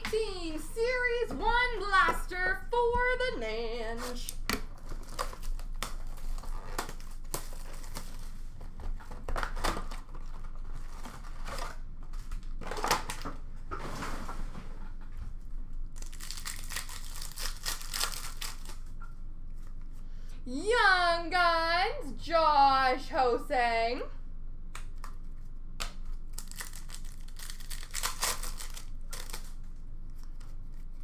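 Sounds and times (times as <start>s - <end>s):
foil wrappers crinkling and tearing: 4.0s - 13.2s, 15.9s - 19.0s, 25.4s - 31.0s.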